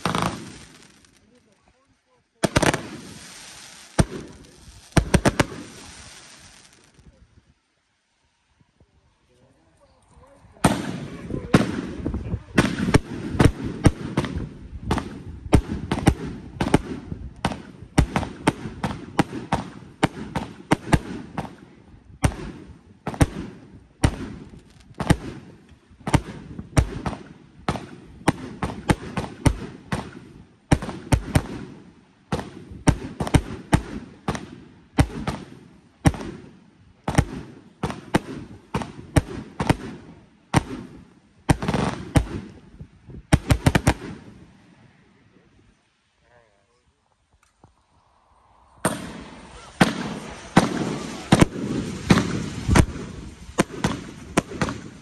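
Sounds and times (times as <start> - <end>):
firework aerial pops: 0.0 - 1.2, 2.4 - 7.1, 48.8 - 55.0.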